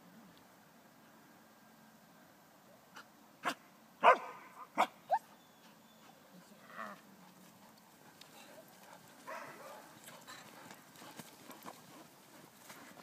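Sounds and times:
dog barking: 3.4s - 4.9s, 9.3s - 9.9s.

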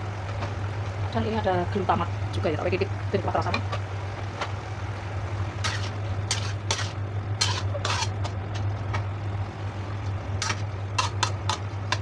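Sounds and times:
low hum: 0.0s - 12.0s
metal spatula scraping a wok: 5.6s - 8.6s, 10.4s - 11.6s.

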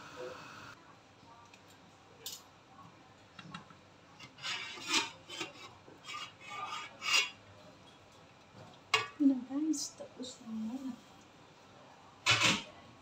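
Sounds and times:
steel rim scraping on steamer: 4.2s - 7.4s.

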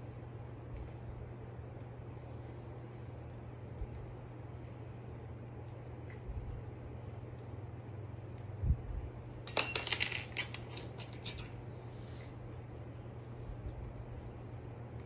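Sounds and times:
metal parts clinking and rattling: 9.5s - 11.4s.

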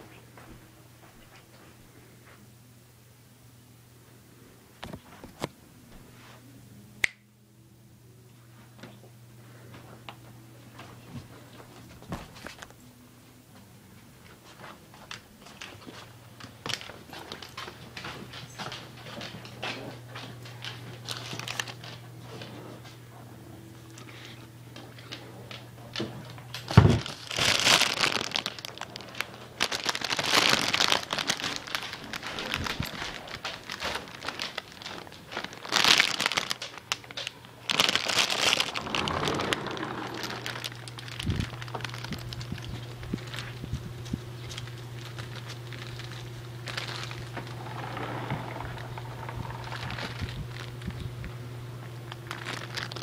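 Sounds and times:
plastic bag crinkling: 15.4s - 17.8s, 20.6s - 22.1s, 26.4s - 53.0s
low hum: 36.8s - 53.0s.

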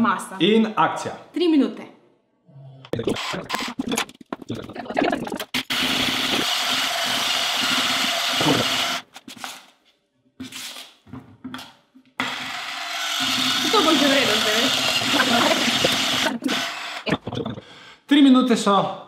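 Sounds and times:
electric hand mixer running: 5.6s - 9.1s, 12.2s - 17.1s.

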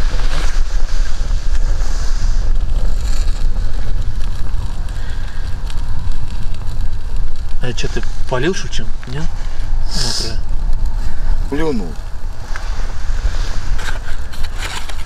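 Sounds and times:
wind buffeting microphone: 0.0s - 15.0s.

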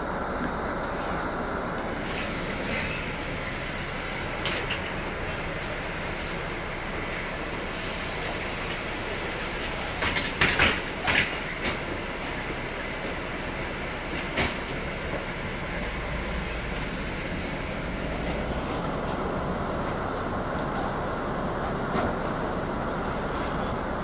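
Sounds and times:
high hiss: 0.4s - 4.5s.

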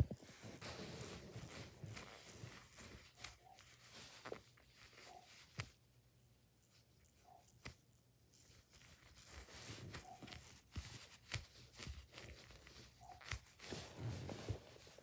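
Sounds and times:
foam toy rustling on bedspread: 0.0s - 5.1s, 13.5s - 15.0s.

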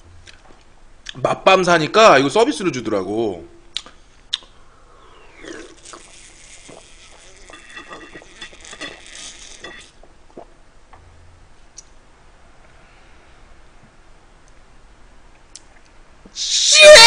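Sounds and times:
person gulping: 3.8s - 10.6s
fizzy drink fizzing: 5.1s - 10.5s.

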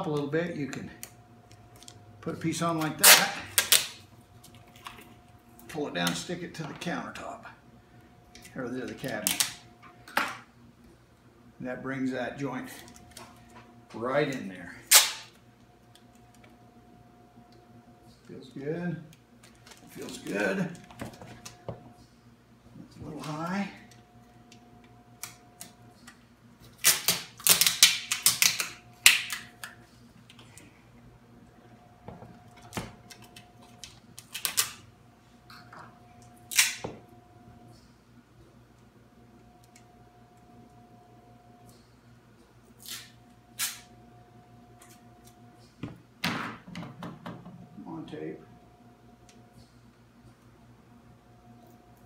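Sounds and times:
packing tape ripping: 2.8s - 4.0s, 9.1s - 9.6s, 14.9s - 15.4s, 26.6s - 29.7s, 32.6s - 34.8s, 36.5s - 36.8s, 42.8s - 43.9s.

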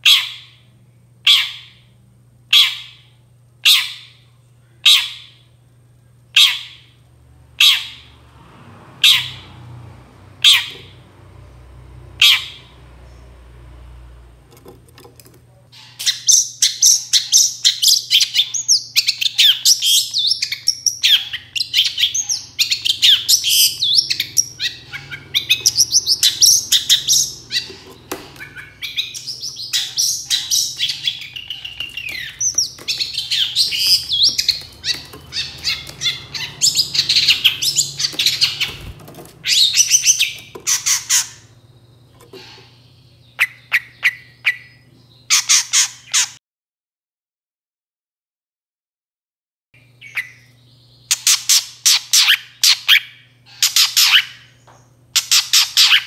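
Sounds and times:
bird singing rapid chattering notes: 15.8s - 46.4s, 49.8s - 54.6s, 55.2s - 56.0s.

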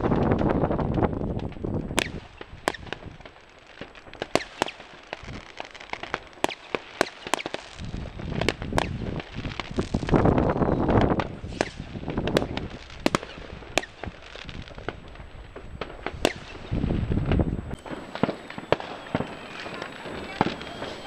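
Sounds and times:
wind rumble on microphone: 0.0s - 3.3s, 7.8s - 21.0s
fireworks bangs and cracks: 0.0s - 21.0s.

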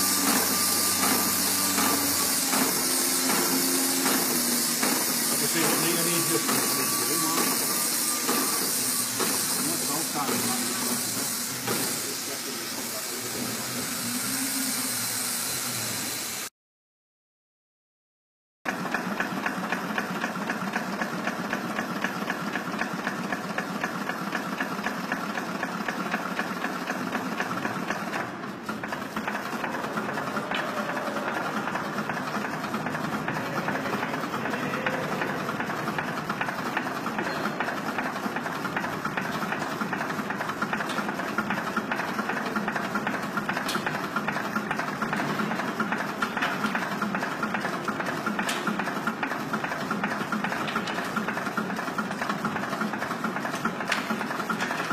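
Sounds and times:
engine mechanical clatter: 18.7s - 54.9s.

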